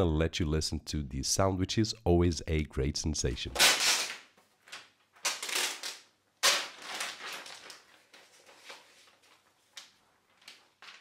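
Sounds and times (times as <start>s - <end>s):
plastic envelope crinkling: 3.6s - 11.0s.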